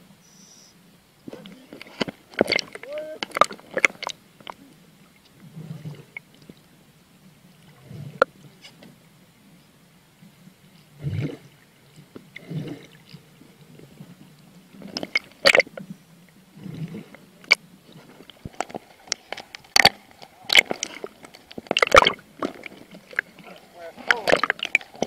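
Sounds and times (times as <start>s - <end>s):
water splashing against camera: 1.2s - 4.7s, 16.8s - 25.0s.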